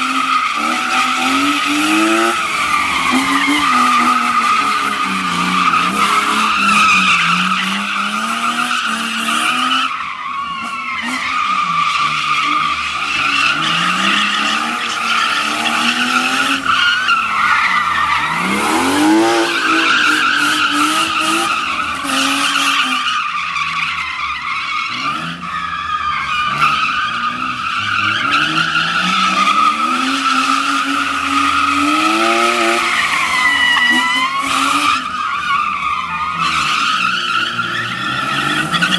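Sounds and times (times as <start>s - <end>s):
car engine revving: 0.0s - 38.9s
tyres squealing: 10.8s - 38.9s.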